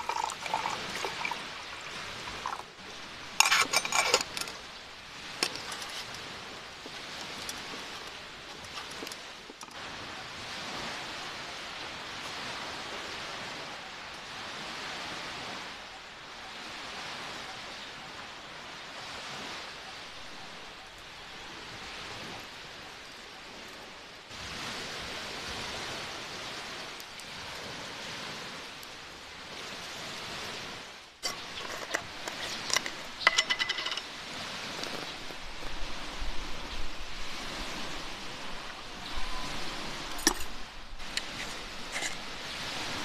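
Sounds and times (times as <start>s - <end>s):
tin lids and glass clinking: 0.0s - 2.7s, 3.3s - 4.7s, 5.3s - 6.2s, 31.2s - 34.2s
surf rushing: 0.0s - 13.7s, 24.4s - 43.0s
ringing metallic clink: 33.2s - 34.0s.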